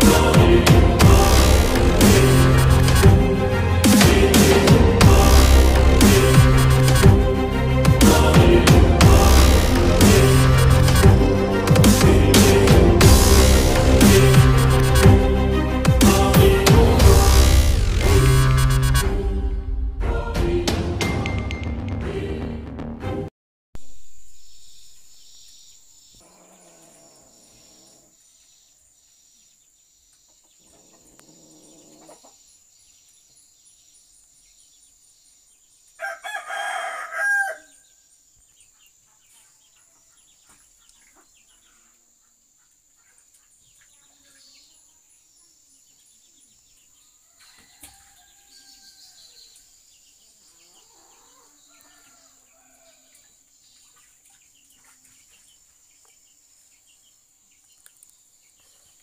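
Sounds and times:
rooster crowing: 0:36.0 - 0:37.8, 0:47.2 - 0:49.4, 0:50.9 - 0:53.1.

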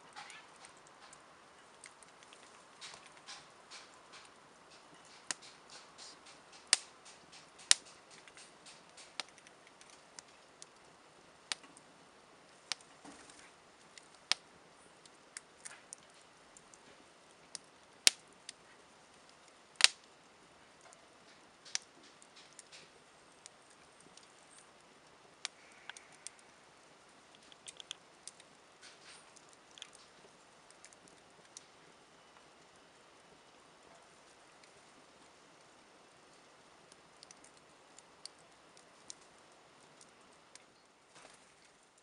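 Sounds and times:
faint steady hiss: 0:00.0 - 0:42.0
campfire crackling and popping: 0:00.1 - 0:42.0.

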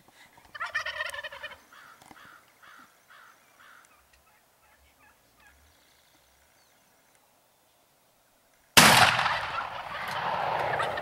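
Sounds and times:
turkey gobbling: 0:00.5 - 0:02.0, 0:09.3 - 0:11.0
turkey yelps: 0:00.5 - 0:05.6, 0:09.3 - 0:11.0.

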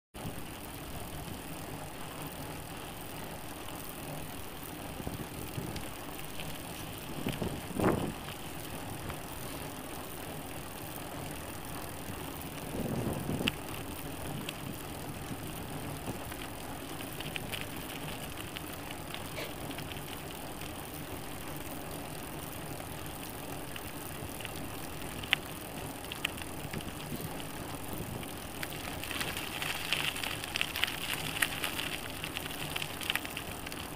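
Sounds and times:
bicycle rolling on a dirt road: 0:00.2 - 0:33.9
wind noise: 0:05.0 - 0:08.9, 0:12.6 - 0:16.2.

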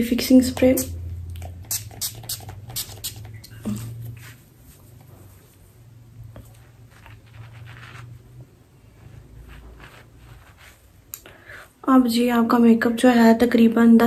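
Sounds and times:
low steady hum: 0:00.0 - 0:14.0
spray bottle misting hiss: 0:01.6 - 0:03.3.

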